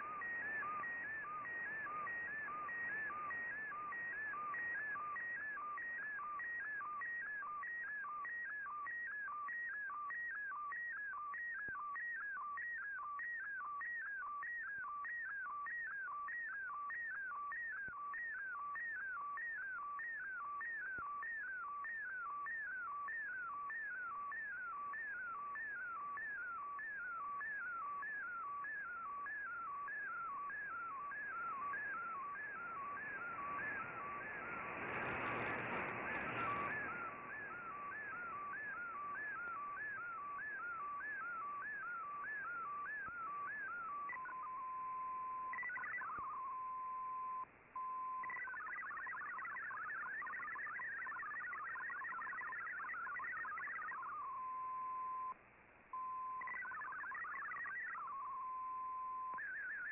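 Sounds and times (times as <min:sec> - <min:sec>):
radio static and crackle: 0:28.4 - 0:59.9
warbling sweeping radio tone: 0:33.2 - 0:40.7, 0:56.4 - 0:58.3.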